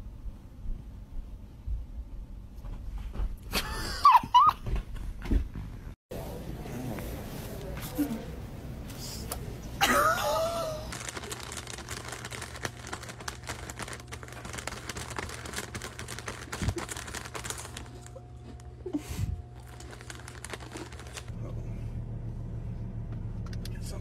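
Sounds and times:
plastic packet crinkling: 10.2 - 18.7, 19.6 - 21.3.

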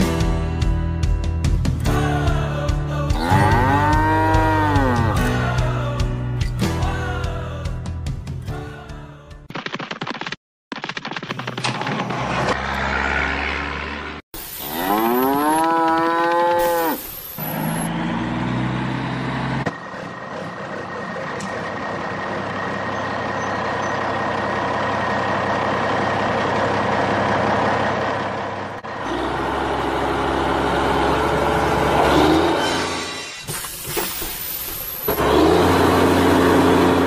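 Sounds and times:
cow mooing: 3.2 - 5.2, 14.6 - 17.0
vehicle drone: 12.0 - 15.6, 16.2 - 33.4, 34.9 - 37.0
tractor engine running: 17.8 - 37.0.

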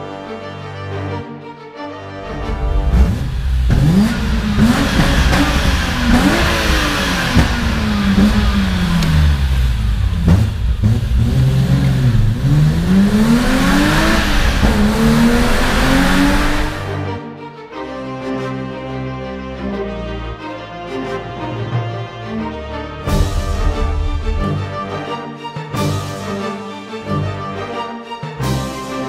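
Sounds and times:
car engine revving: 2.2 - 17.0.

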